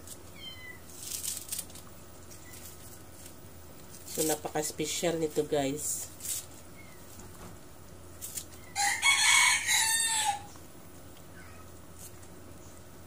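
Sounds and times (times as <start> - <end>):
rooster crowing: 8.6 - 10.6.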